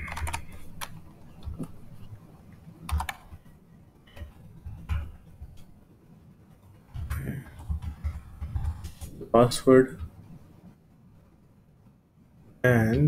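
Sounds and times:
keyboard keys clicking: 0.0s - 1.8s, 2.9s - 3.4s.

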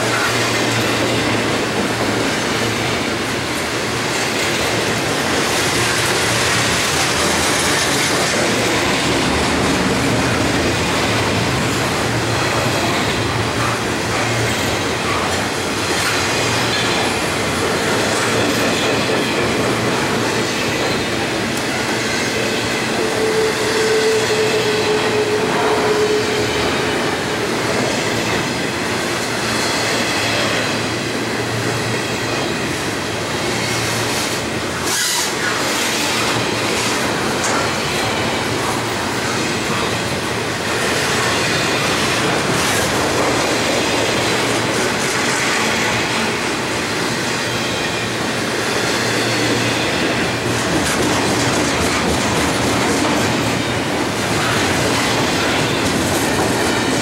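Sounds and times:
freight train wheels rumbling: 0.0s - 57.0s
train wheel squeal: 20.2s - 30.8s, 31.6s - 42.9s, 47.3s - 50.4s.

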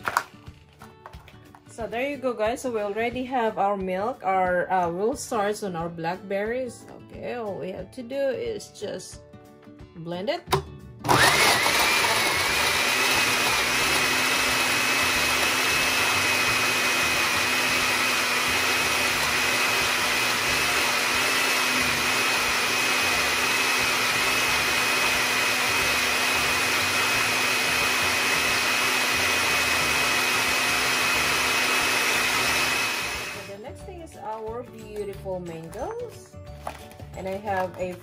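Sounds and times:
blender motor whine: 11.0s - 33.6s.

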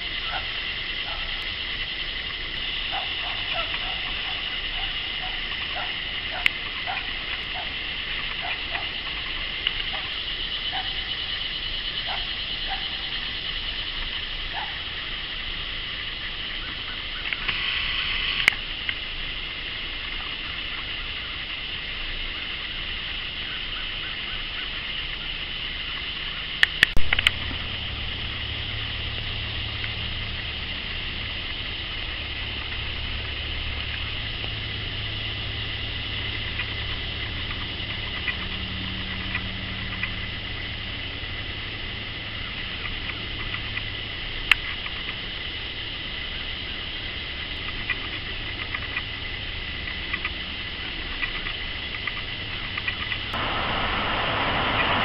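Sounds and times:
insects droning: 0.0s - 55.0s
steady high hiss: 0.0s - 55.0s
sharp click: 26.6s - 27.6s
vehicle engine idling: 26.6s - 55.0s.

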